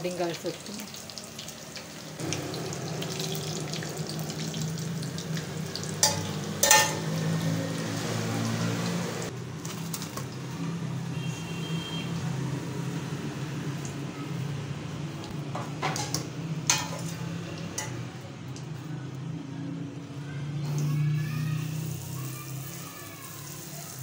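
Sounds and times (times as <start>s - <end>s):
oil sizzling: 0.0s - 11.2s, 12.1s - 18.8s, 20.6s - 24.0s
metal skimmer clinking on pan: 6.0s - 7.1s.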